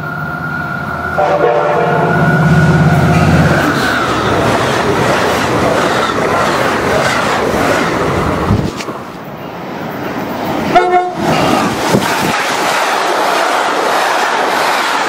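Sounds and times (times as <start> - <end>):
train wheels rumbling on rails: 0.0 - 15.0
train horn: 1.1 - 3.1, 10.7 - 11.2.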